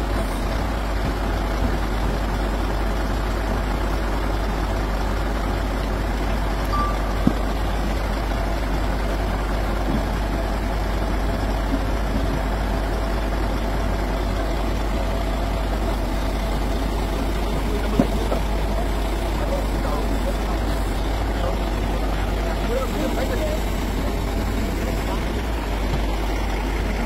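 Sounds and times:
heavy engine droning: 0.0 - 27.0
short beep: 6.7 - 7.6.

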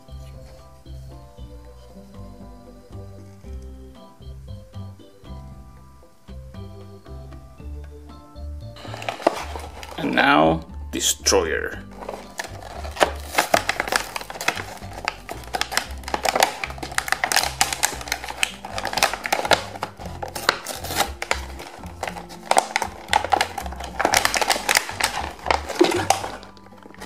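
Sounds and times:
background music: 0.0 - 27.0
plastic packaging crinkling: 8.8 - 10.3, 11.8 - 27.0.

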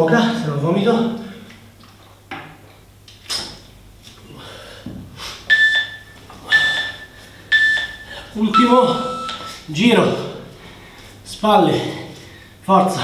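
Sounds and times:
short electronic beeps: 5.5 - 9.6.

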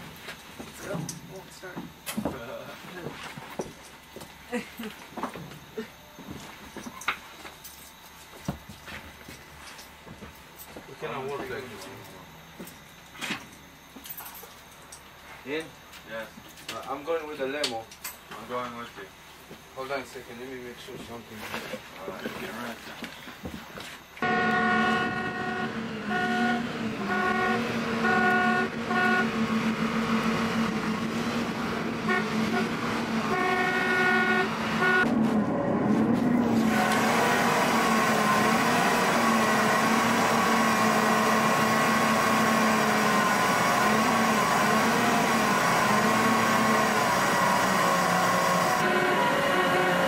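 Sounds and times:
vehicle horn tooting: 24.2 - 29.8, 32.0 - 35.2, 48.6 - 50.0
bus engine running: 24.2 - 50.0.

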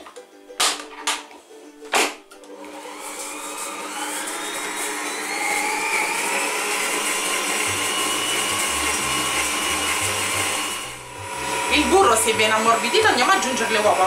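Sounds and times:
stand mixer motor whine: 2.6 - 14.0.

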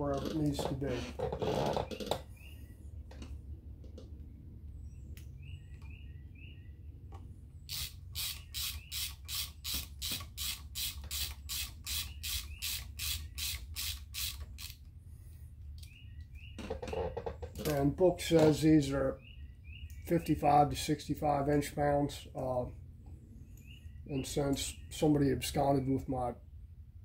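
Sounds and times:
hand ratchet clicking: 7.7 - 14.8.

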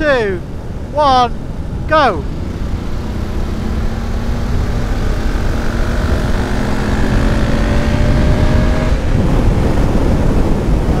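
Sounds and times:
wind rush on microphone: 0.0 - 11.0
motorcycle engine accelerating: 2.2 - 11.0.

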